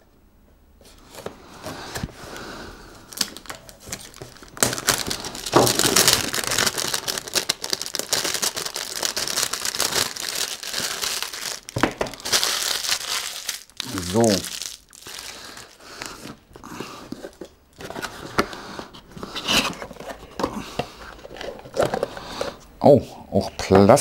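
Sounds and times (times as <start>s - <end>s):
packaging crinkling and tearing: 3.1s - 18.5s.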